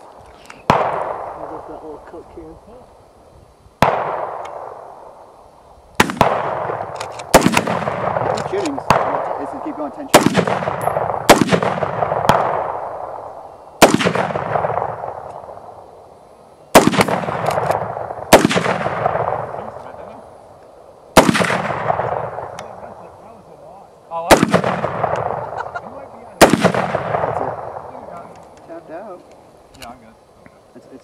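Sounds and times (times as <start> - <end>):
shotgun shots: 0.7 - 1.7, 3.8 - 5.2, 6.0 - 15.8, 16.7 - 20.0, 21.1 - 23.0, 24.2 - 25.7, 26.3 - 28.2
gunshot echo: 0.7 - 2.0, 3.8 - 5.2, 6.0 - 15.8, 16.7 - 20.0, 21.1 - 23.1, 24.2 - 25.6, 26.3 - 28.2.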